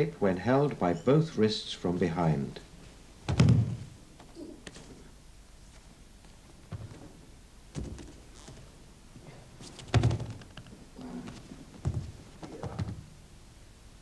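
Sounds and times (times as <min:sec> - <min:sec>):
bodies thumping onto padded mat: 0:03.3 - 0:04.0, 0:09.7 - 0:10.4, 0:11.2 - 0:13.0.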